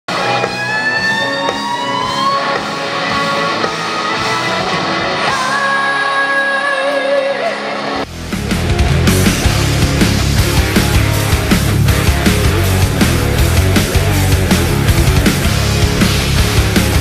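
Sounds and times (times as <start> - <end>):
live band with singing: 0.1 - 8.0
heavy rock music: 0.1 - 17.0.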